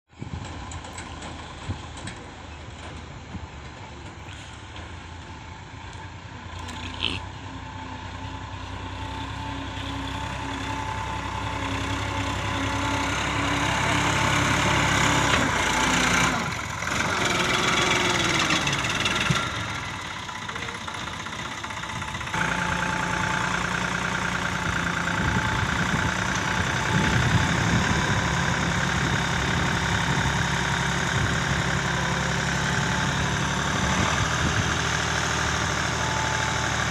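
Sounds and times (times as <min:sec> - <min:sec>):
tractor diesel engines running: 0:00.1 - 0:36.9.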